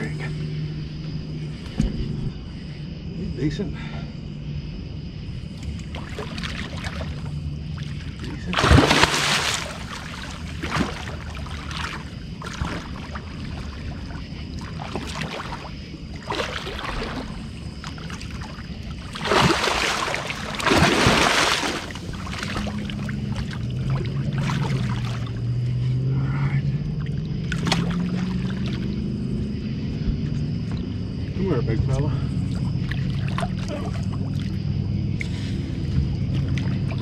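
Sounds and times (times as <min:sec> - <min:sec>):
steady low hum: 0:00.0 - 0:37.0
fish splashing at surface: 0:08.5 - 0:13.2, 0:14.7 - 0:25.2.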